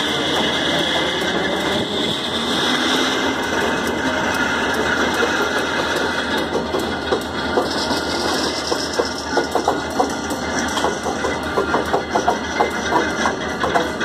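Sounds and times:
metal clanks and knocks: 0:03.2 - 0:14.0.

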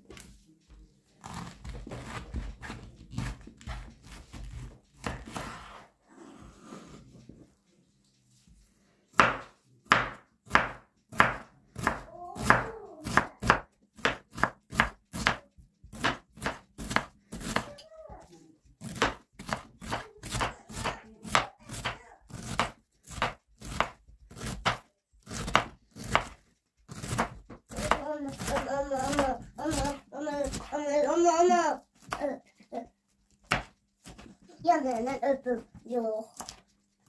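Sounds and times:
knife slicing cabbage on board: 0:01.2 - 0:05.9, 0:09.1 - 0:17.7, 0:18.8 - 0:32.4, 0:33.3 - 0:35.7, 0:36.3 - 0:36.8.

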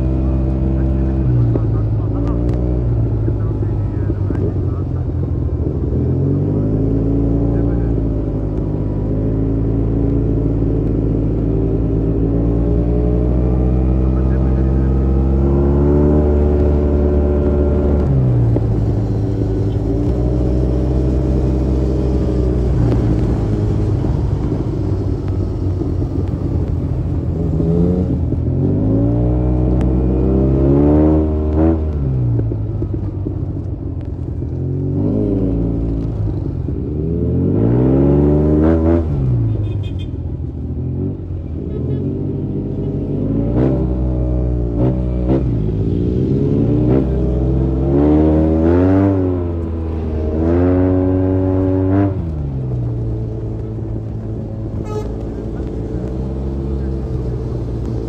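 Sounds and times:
steady low rumble: 0:00.0 - 0:30.6, 0:51.3 - 0:58.0
motorcycle engine revving: 0:00.0 - 0:58.0.

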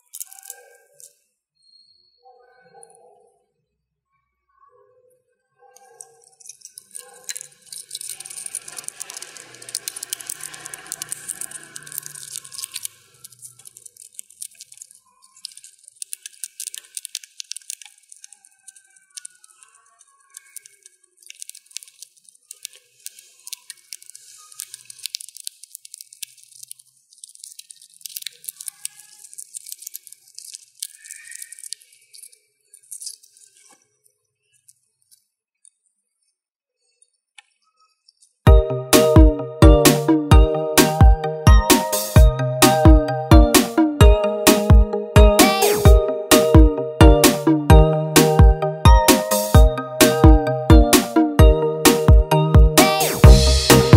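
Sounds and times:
hamster cracking seed shells: 0:00.0 - 0:01.2, 0:05.8 - 0:33.8.

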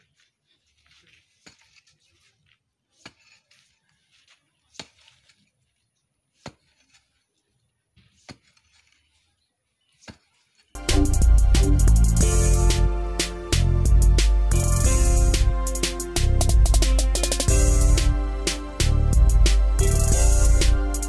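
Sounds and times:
pickaxe striking soil: 0:02.9 - 0:04.0, 0:04.6 - 0:05.4, 0:06.3 - 0:07.2, 0:08.0 - 0:09.0.

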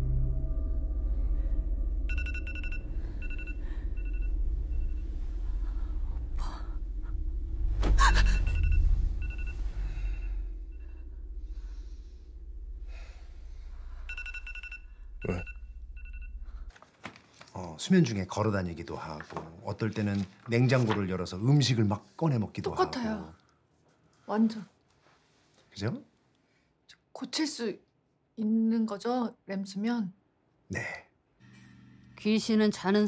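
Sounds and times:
steady low rumble: 0:00.0 - 0:16.7
electronic ringing beeps: 0:02.1 - 0:05.2, 0:08.2 - 0:11.1, 0:14.0 - 0:16.7.

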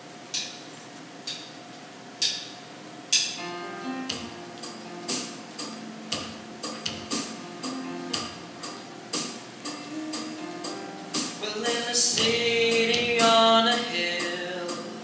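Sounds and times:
sharp percussive clicks: 0:02.2 - 0:03.4
light percussion beat: 0:04.1 - 0:15.0.

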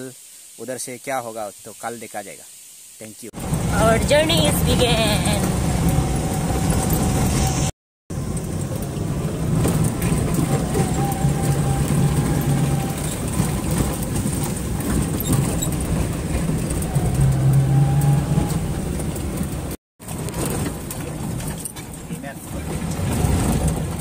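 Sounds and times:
car engine drone: 0:03.4 - 0:24.0
car body rattling over stones: 0:08.1 - 0:17.9, 0:18.6 - 0:24.0.

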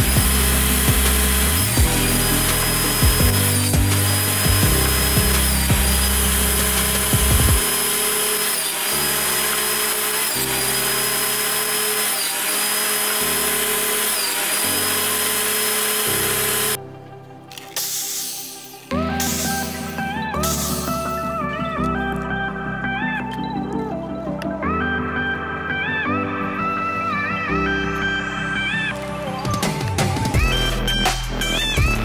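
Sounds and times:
table saw cutting wood: 0:00.0 - 0:16.8, 0:18.1 - 0:21.5
background music: 0:00.0 - 0:32.0.

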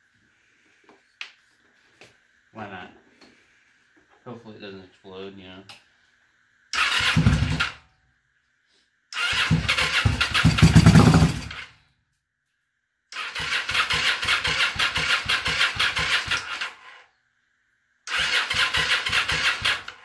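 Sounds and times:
motorcycle engine cranking and firing: 0:06.8 - 0:07.8, 0:09.2 - 0:11.8, 0:13.2 - 0:17.0, 0:18.1 - 0:20.0.

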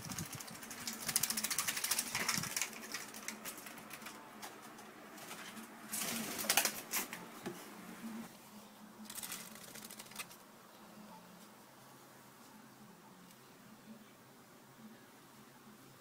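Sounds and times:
bird wings fluttering: 0:00.0 - 0:04.2, 0:05.2 - 0:07.2, 0:09.1 - 0:10.4.

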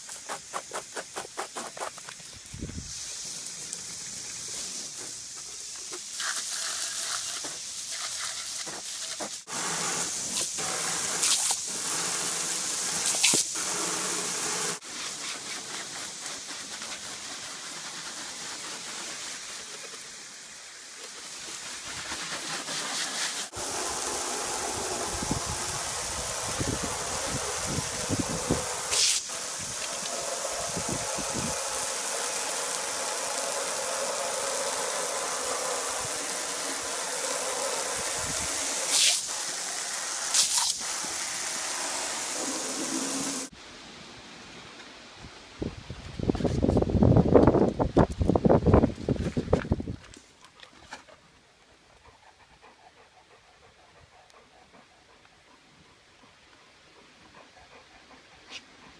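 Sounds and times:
garden hose spray hissing: 0:00.0 - 0:43.6.

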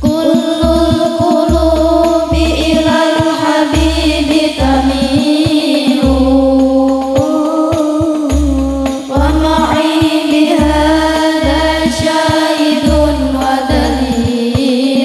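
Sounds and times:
deep regular bass beat: 0:00.0 - 0:05.4, 0:06.0 - 0:07.2, 0:08.3 - 0:12.1, 0:12.9 - 0:14.3
women singing together: 0:00.0 - 0:15.0.

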